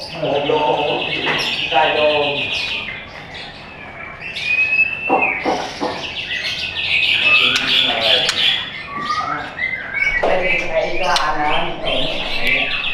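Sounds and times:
songbird singing fast notes: 0.0 - 12.9
bird clicks: 7.5 - 8.6.

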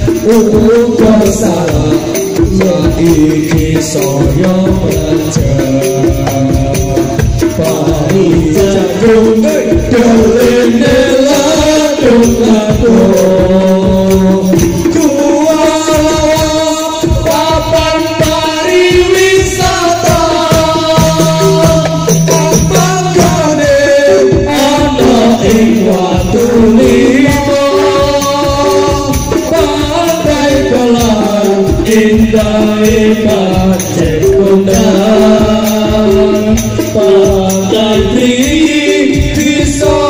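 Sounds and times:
melody over percussion beat: 0.0 - 40.0.

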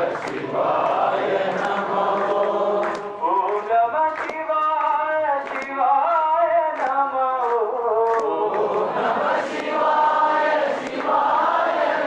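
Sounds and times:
group singing a chant: 0.0 - 4.3, 8.0 - 12.0.

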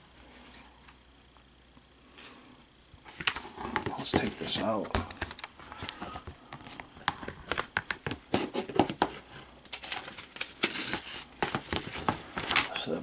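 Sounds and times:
paper rustling: 3.1 - 12.9.

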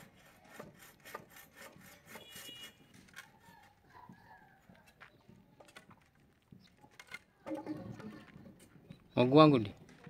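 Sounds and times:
machete scraping wooden pole: 0.0 - 3.4.

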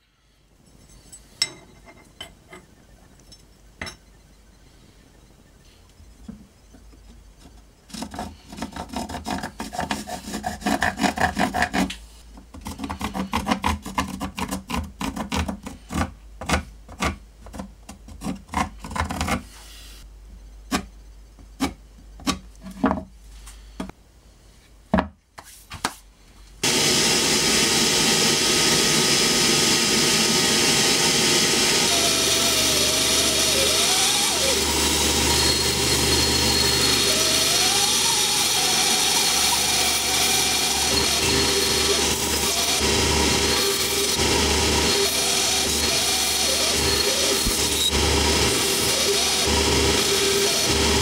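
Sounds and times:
bandsaw cutting wood: 26.6 - 51.0.

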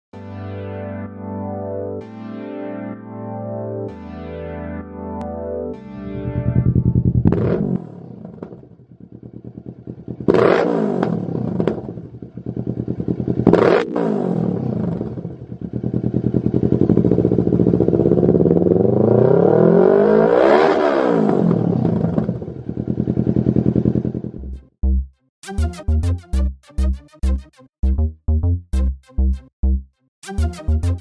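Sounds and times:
motorcycle engine revving: 6.1 - 24.5.

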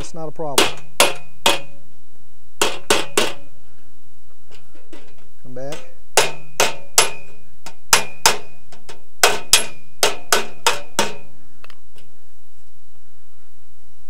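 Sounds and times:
hammer tapping sheet metal: 0.6 - 1.8, 2.6 - 3.5, 4.8 - 11.3.

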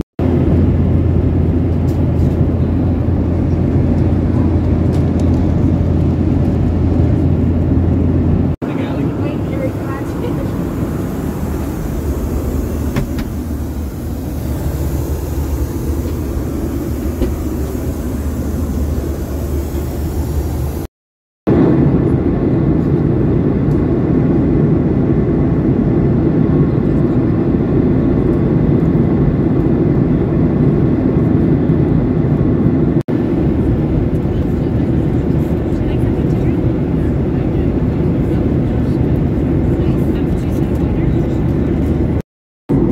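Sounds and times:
aircraft cabin engine roar: 0.0 - 20.9, 21.5 - 42.9
high hiss: 9.0 - 20.9.

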